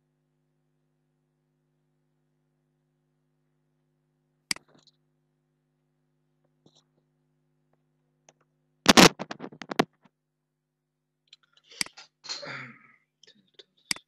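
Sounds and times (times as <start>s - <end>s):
mouse clicks: 4.5s - 5.0s.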